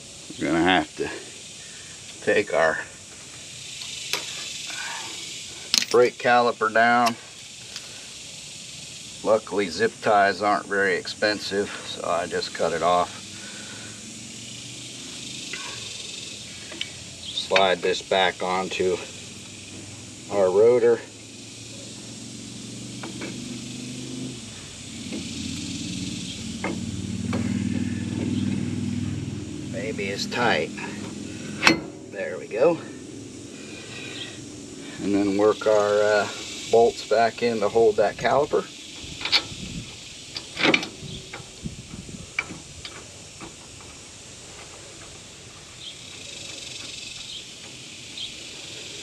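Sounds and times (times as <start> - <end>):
steady high hiss: 0.0 - 49.0
sharp metallic clicks: 7.0 - 7.9, 40.2 - 41.5
vehicle engine running: 7.2 - 49.0.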